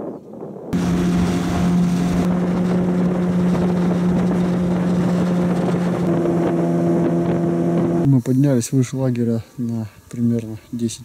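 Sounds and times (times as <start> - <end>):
wind over microphone: 0.0 - 8.4
outboard motor running: 0.8 - 8.1
water rushing: 0.8 - 8.1.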